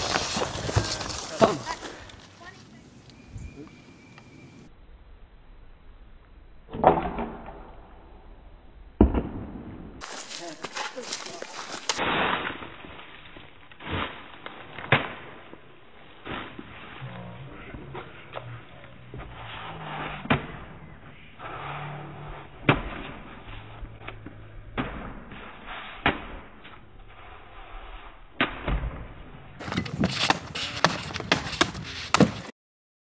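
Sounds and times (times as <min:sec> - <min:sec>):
sharp cracks and knocks: 0:09.0 - 0:15.6
blade cutting through bamboo: 0:29.6 - 0:32.5.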